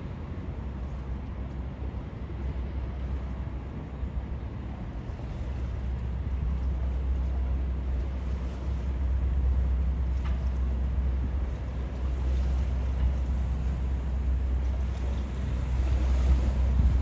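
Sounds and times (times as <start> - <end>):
boat engine rumbling: 0.0 - 17.0
wind on microphone: 15.6 - 17.0.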